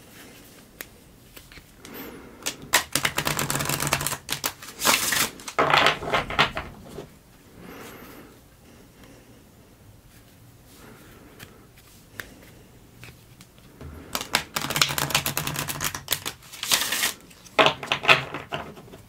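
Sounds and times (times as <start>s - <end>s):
cards shuffling and flicking: 0.6s - 6.7s, 11.4s - 18.8s.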